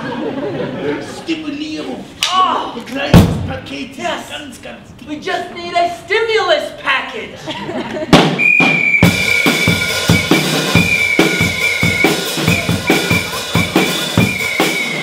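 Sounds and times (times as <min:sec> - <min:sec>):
high shrill whistle note: 0:08.4 - 0:15.0
quick steady drum beat: 0:09.0 - 0:15.0.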